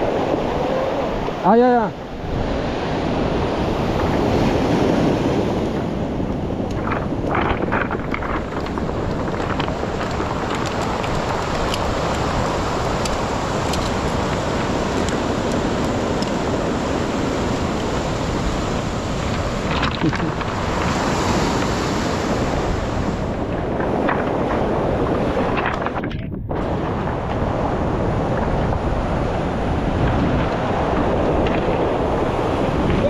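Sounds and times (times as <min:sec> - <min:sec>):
surf washing onto cobbles: 0:00.0 - 0:33.0
wind on microphone: 0:00.0 - 0:33.0
stones clacking underfoot: 0:06.7 - 0:16.4, 0:19.7 - 0:20.5.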